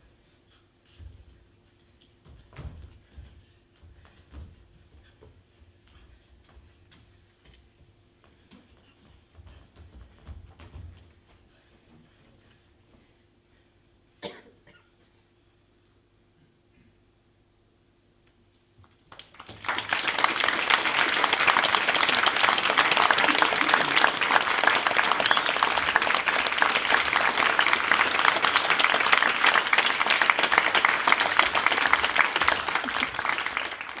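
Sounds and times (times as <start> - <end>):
audience applauding: 19.1 - 34.0.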